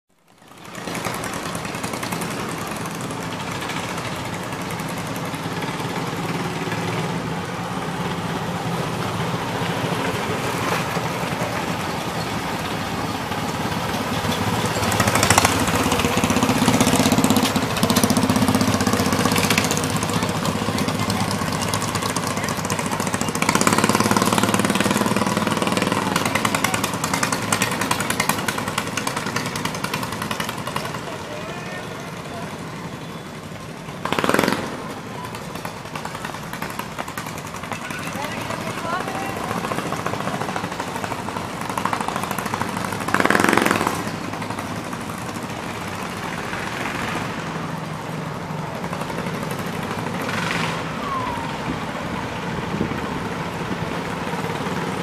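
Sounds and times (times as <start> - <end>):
small engines rattling: 0.1 - 55.0.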